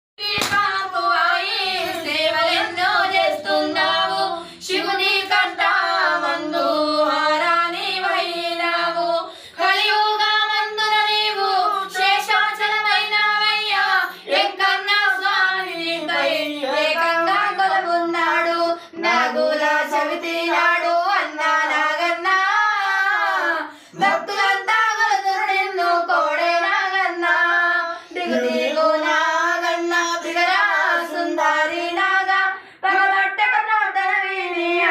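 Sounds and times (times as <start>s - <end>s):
high voice singing devotional song: 0.2s - 34.9s.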